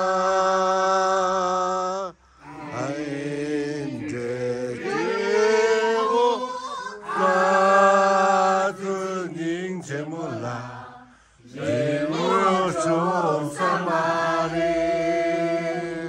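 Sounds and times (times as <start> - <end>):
person singing unaccompanied: 0.0 - 16.0.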